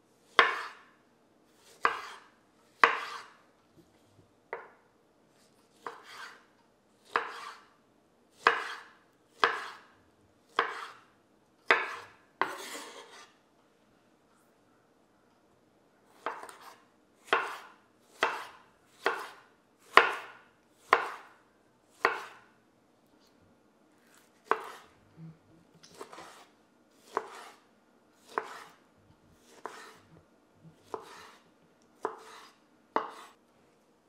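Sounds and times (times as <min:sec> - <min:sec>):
knife chopping on wooden board: 0:00.3 - 0:00.9, 0:01.6 - 0:03.4, 0:05.7 - 0:06.4, 0:07.0 - 0:07.7, 0:08.4 - 0:09.9, 0:10.5 - 0:11.0, 0:11.6 - 0:13.3, 0:16.2 - 0:21.3, 0:21.9 - 0:22.4, 0:24.1 - 0:24.9, 0:25.9 - 0:27.6, 0:28.2 - 0:28.8, 0:29.4 - 0:30.1, 0:30.8 - 0:31.4, 0:32.0 - 0:33.4.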